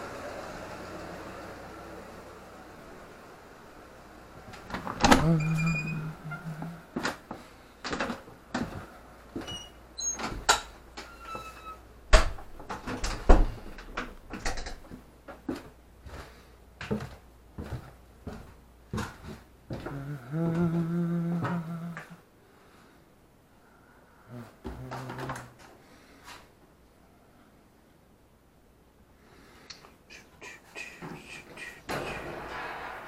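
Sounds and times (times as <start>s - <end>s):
steady low hum: 0.0s - 10.0s, 11.9s - 33.0s
faint creaks: 4.5s - 7.5s, 11.0s - 11.9s
footsteps on stairs: 14.8s - 20.8s.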